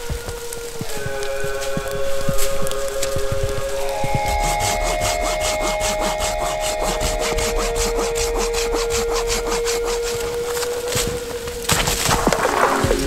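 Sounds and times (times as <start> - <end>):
hand saw cutting wood: 4.1 - 10.7.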